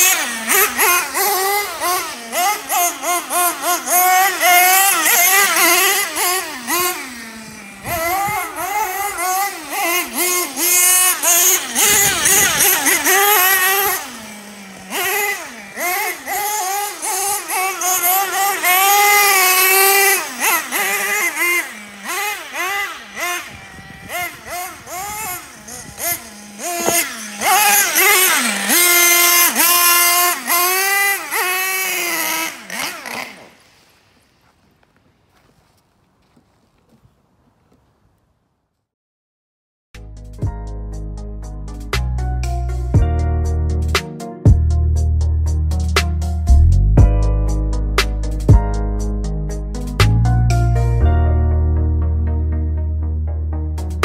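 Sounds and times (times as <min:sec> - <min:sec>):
small nitro engine revving: 0:00.0 - 0:38.2.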